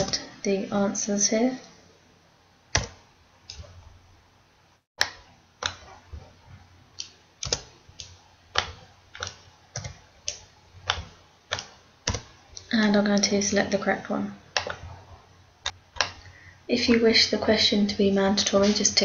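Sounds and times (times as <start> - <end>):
keyboard keystrokes: 2.7 - 3.7, 7.0 - 12.3.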